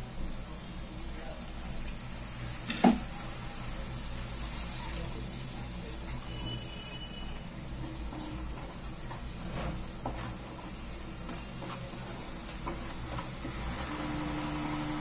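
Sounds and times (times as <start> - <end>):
low sizzle: 0.0 - 15.0
wooden spatula scraping a pan: 7.8 - 14.7.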